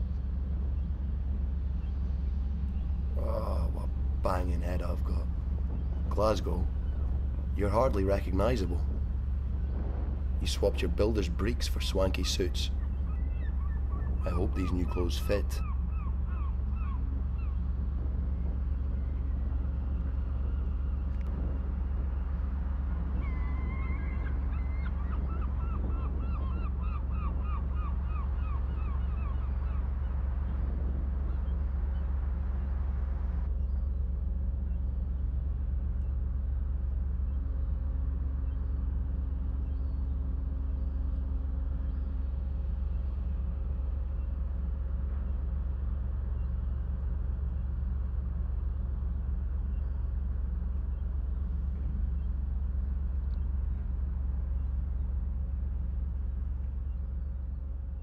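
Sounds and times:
boat engine rumbling: 0.0 - 58.0
birds calling: 0.5 - 21.2, 23.1 - 32.6.

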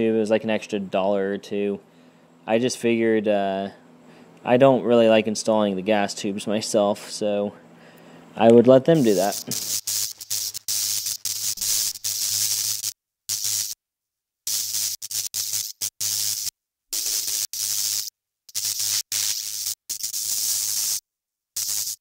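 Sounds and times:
loud static hiss: 8.4 - 13.8, 14.5 - 21.0, 21.6 - 22.0.

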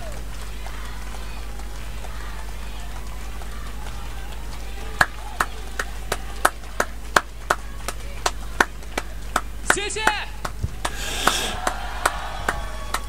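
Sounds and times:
faint crowd noise: 0.0 - 13.0
hands clapping: 0.0 - 13.0.

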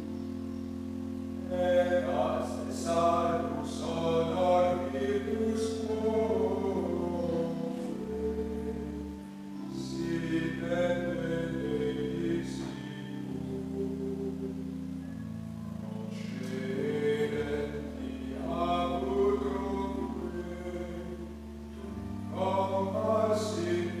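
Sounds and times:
low held accompanying chords: 0.0 - 24.0
voices singing a hymn: 0.0 - 24.0.

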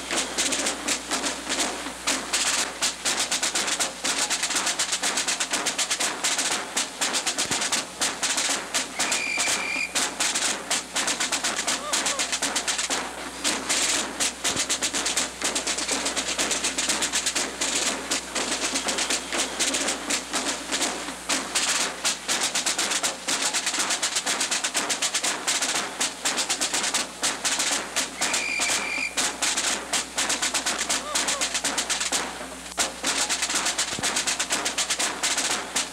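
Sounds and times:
percussive banging and clattering: 0.0 - 35.9
high whistle-like tone: 9.0 - 10.0, 28.2 - 29.2.

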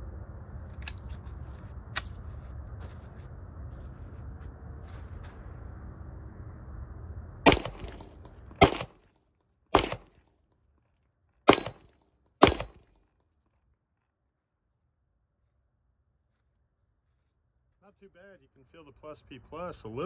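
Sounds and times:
pistol shots: 7.5 - 9.0, 9.7 - 10.2, 11.5 - 12.9.

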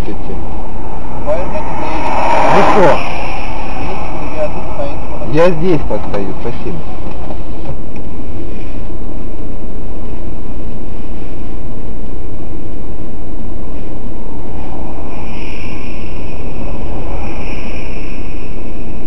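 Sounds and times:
car passing by: 0.0 - 8.8
steady rumbling inside car: 0.0 - 19.0.

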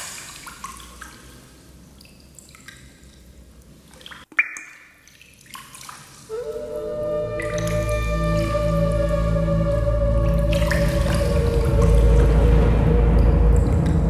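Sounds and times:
sustained musical tones: 6.3 - 14.0.

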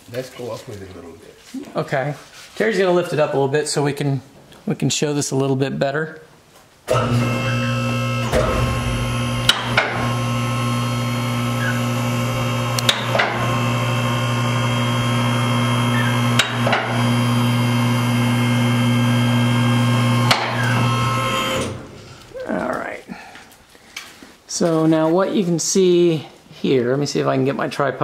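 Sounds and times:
hydraulic pump motor humming: 6.9 - 22.0
sharp clicks: 12.7 - 13.3.

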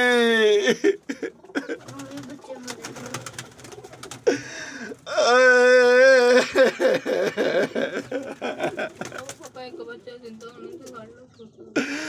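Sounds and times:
man wailing in grief: 0.0 - 1.8, 4.3 - 8.8
man crying: 0.0 - 2.0, 4.2 - 9.1, 11.8 - 12.0.

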